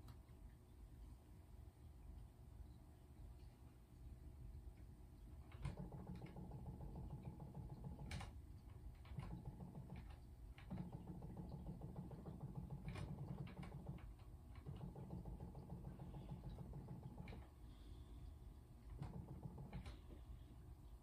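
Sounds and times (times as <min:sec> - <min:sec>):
low motor hum: 0:05.6 - 0:21.0.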